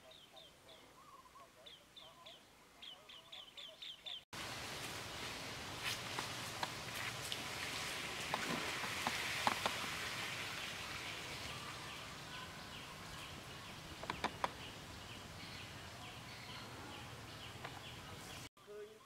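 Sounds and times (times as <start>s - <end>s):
light rain pattering on water: 4.4s - 12.3s.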